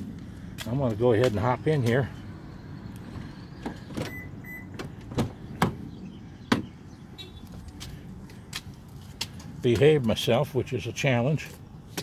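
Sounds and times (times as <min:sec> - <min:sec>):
car door clicks and knocks: 0:06.5 - 0:06.8.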